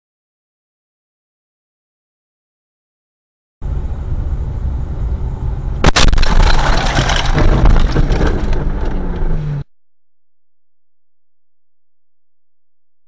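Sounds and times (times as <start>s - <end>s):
car rumbling on the move: 3.6s - 9.7s
dense jumble of crash noise: 5.8s - 9.0s
loud car impact: 5.8s - 9.6s.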